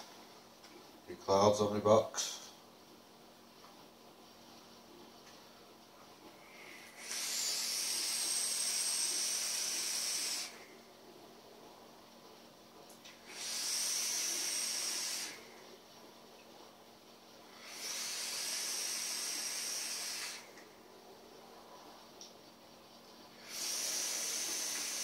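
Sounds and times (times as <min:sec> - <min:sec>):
airy hiss of vape drag: 0:06.4 - 0:10.8, 0:13.1 - 0:15.6, 0:17.5 - 0:20.6, 0:23.3 - 0:25.0.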